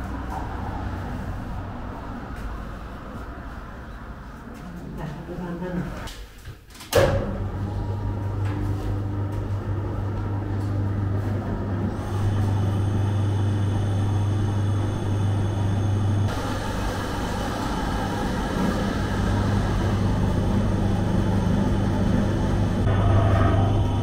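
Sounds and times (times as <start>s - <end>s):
oven motor humming: 7.0s - 24.0s.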